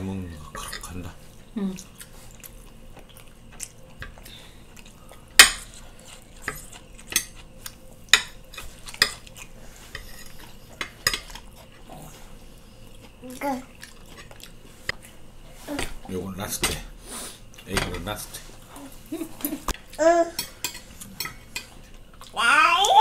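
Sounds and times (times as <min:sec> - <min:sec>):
cutlery clinking on ceramic plates: 0:09.9 - 0:11.4, 0:20.4 - 0:21.8.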